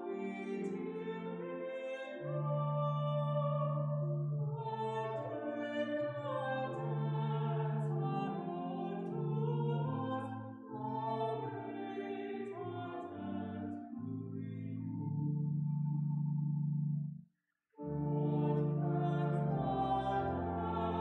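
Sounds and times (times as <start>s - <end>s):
voices singing a hymn: 0.0s - 15.0s, 17.9s - 21.0s
pipe organ chords: 0.0s - 17.2s, 17.8s - 21.0s.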